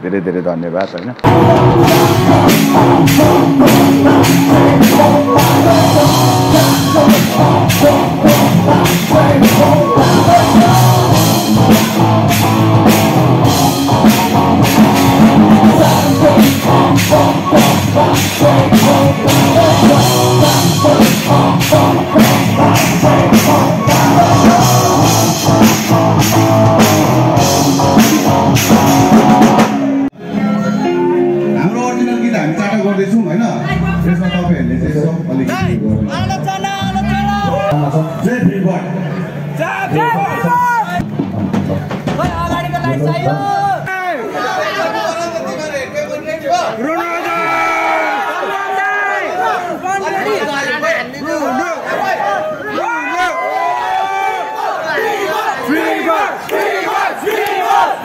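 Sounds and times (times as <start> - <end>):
drum kit beat: 1.2 - 30.1, 41.0 - 43.2
electric guitars: 1.2 - 32.8.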